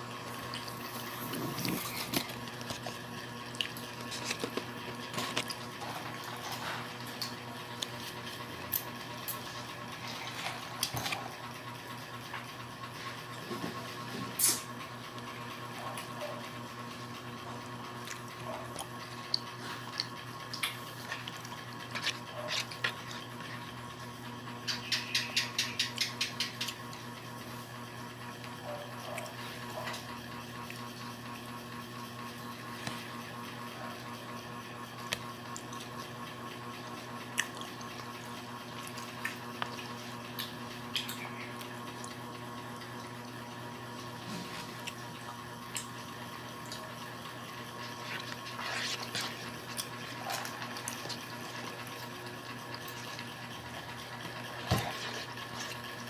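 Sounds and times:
person chewing with mouth clicks: 0:00.0 - 0:11.4, 0:18.0 - 0:23.7, 0:37.2 - 0:42.2, 0:47.7 - 0:56.0
steady low hum: 0:00.0 - 0:56.0.

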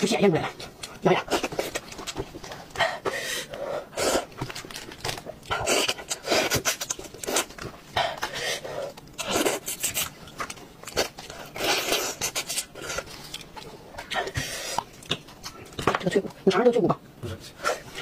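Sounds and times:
wet chewing and crunching: 0:04.2 - 0:15.9.

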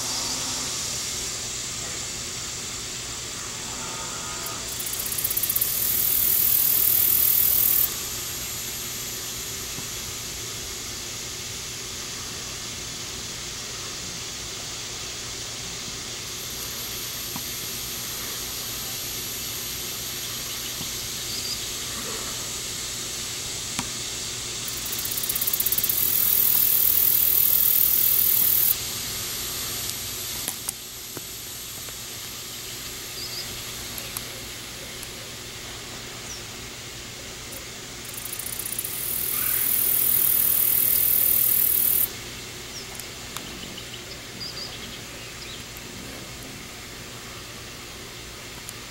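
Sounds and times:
high-pitched insect buzzing: 0:00.0 - 0:01.2, 0:03.5 - 0:08.0, 0:24.6 - 0:28.8, 0:38.0 - 0:42.1.

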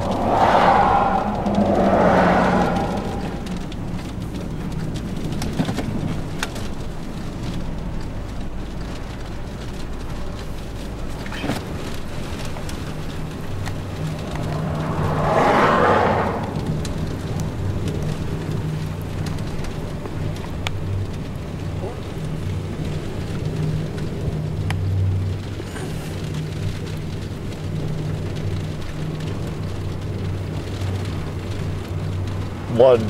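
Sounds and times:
engine and road hum: 0:00.0 - 0:33.0
rain or grit ticking on car: 0:00.0 - 0:33.0
wind buffeting car: 0:00.0 - 0:33.0.

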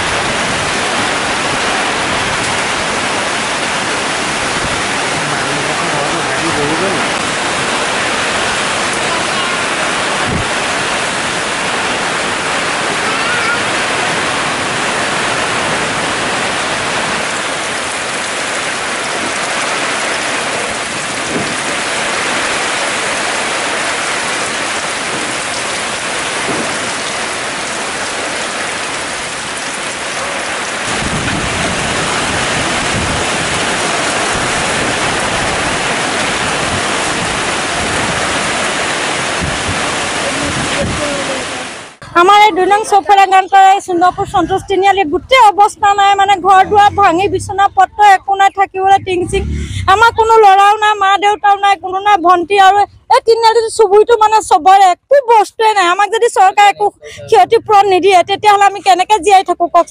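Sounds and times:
gusting wind: 0:00.0 - 0:54.6
heavy rain: 0:00.0 - 0:59.9
wind buffeting microphone: 0:07.0 - 0:13.0, 0:30.8 - 0:42.2, 0:44.0 - 0:50.9.

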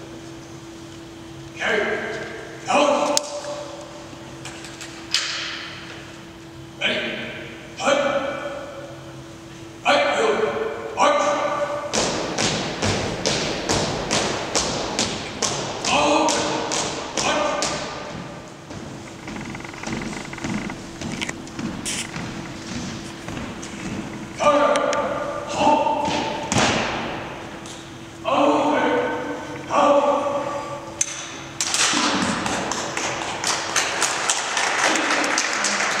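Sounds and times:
marching footsteps on hard floor: 0:12.0 - 0:24.4
audience applause: 0:32.5 - 0:36.0.

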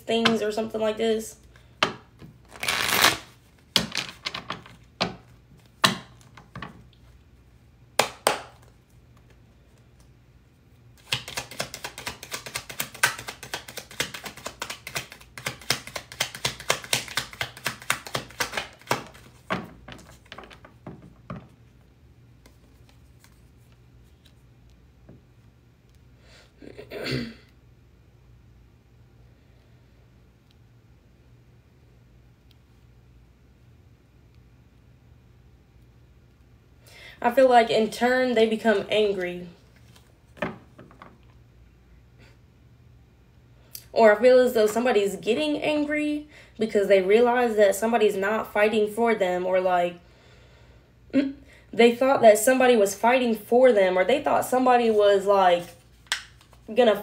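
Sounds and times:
cards shuffling clicks: 0:02.4 - 0:04.8, 0:11.0 - 0:20.8, 0:55.8 - 0:56.7.

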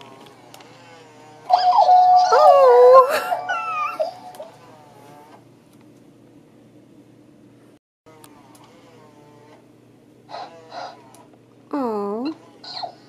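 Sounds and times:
toy electronic animal sounds: 0:01.5 - 0:04.5, 0:10.3 - 0:11.1, 0:12.3 - 0:13.0.

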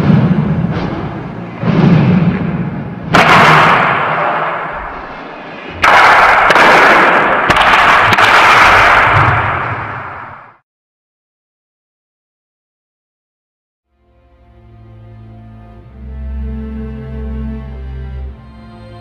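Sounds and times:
low droning tone: 0:00.0 - 0:03.2
loud crashing percussion hits: 0:00.0 - 0:10.6.

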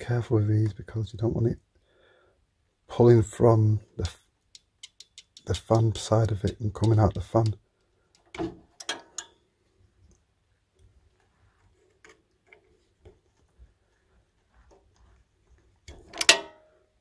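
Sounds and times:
pliers clicking on metal connectors: 0:04.0 - 0:09.4, 0:15.9 - 0:16.4.

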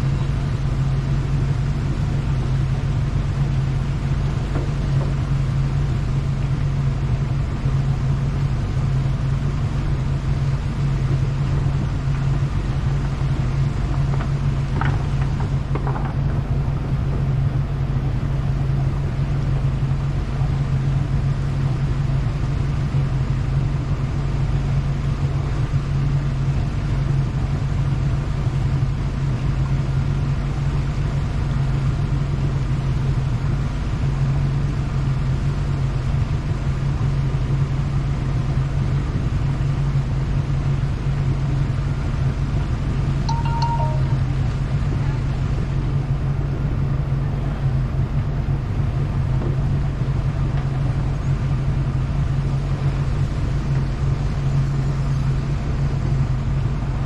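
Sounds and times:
engine idling: 0:00.0 - 0:43.4.

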